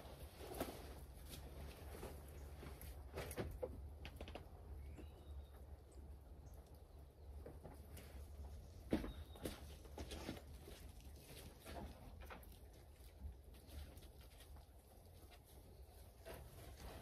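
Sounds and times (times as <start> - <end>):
footsteps on straw: 8.9 - 17.0.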